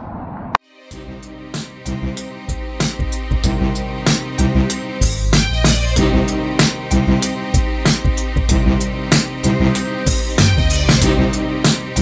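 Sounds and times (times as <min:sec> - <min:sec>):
music with drum beat: 0:00.9 - 0:12.0.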